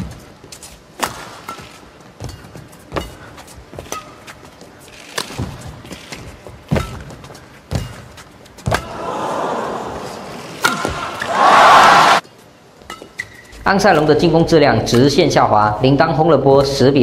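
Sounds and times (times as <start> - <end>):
racket striking shuttlecock: 1.0 - 4.4, 5.1 - 9.0, 10.5 - 11.4
crowd cheering: 8.8 - 12.2
crowd murmur: 8.8 - 12.2.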